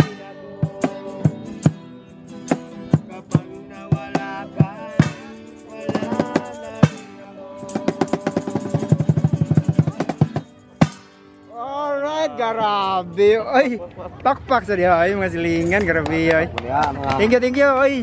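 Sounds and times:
stick-struck percussion beat: 0:00.0 - 0:01.8, 0:02.4 - 0:11.2
acoustic guitar strumming: 0:00.0 - 0:13.8.

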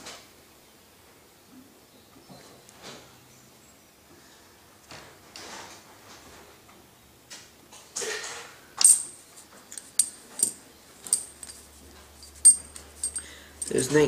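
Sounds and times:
coins clinking: 0:08.8 - 0:09.2, 0:09.8 - 0:14.0.

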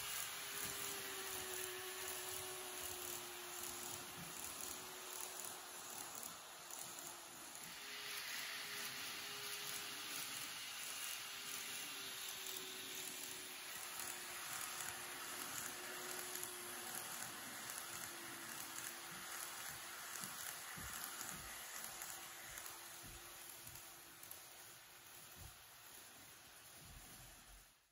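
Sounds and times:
faint motor hum: 0:00.0 - 0:27.7
model train rolling hiss: 0:00.0 - 0:27.9.

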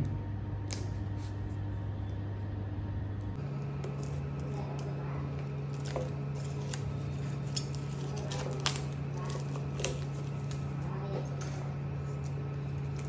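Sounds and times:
low hum: 0:00.0 - 0:13.0
plastic shrink wrap crinkling: 0:03.8 - 0:13.0.

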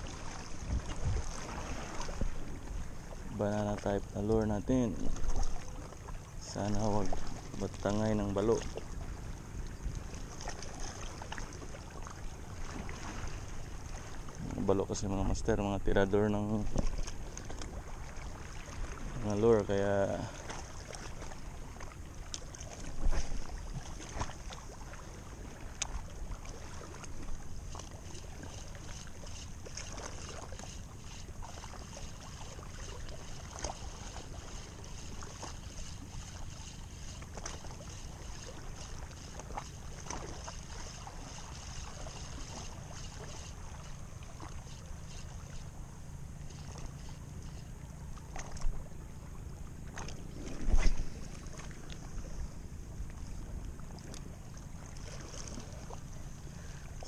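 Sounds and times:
wind on microphone: 0:00.0 - 0:03.4, 0:22.8 - 0:24.2, 0:50.1 - 0:54.0
sea washing at shore: 0:00.0 - 0:57.0.

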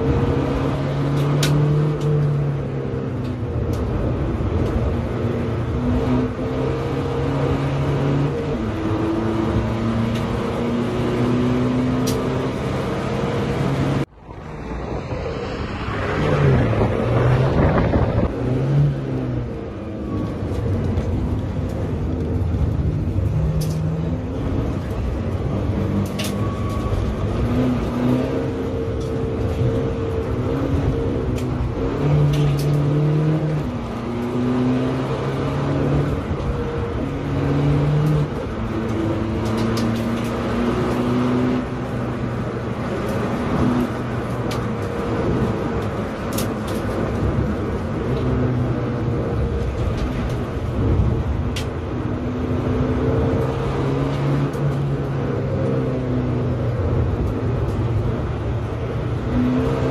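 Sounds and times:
diesel engine accelerating: 0:00.0 - 0:59.9
road and tyre rumble: 0:00.0 - 0:59.9.

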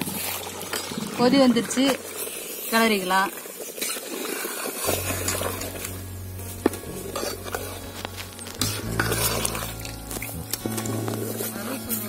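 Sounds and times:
ladle scraping metal pot: 0:03.6 - 0:12.0
background music: 0:04.9 - 0:12.0.

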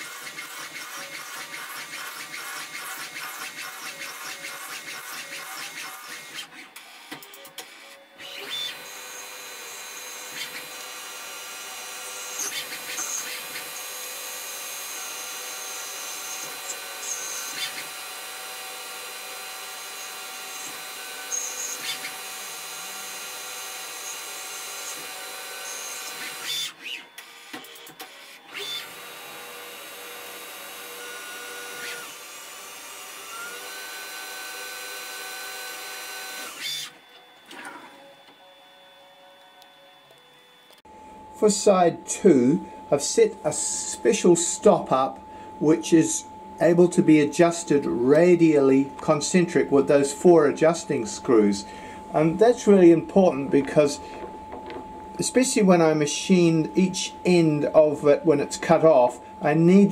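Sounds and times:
metal cutting noise: 0:00.0 - 0:38.9
lathe spindle whine: 0:00.0 - 0:59.9.

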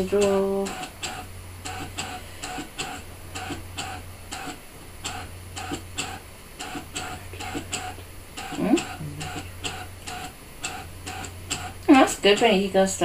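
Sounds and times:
short irregular clicks: 0:00.0 - 0:12.7
cutting machine low hum: 0:00.0 - 0:13.0.

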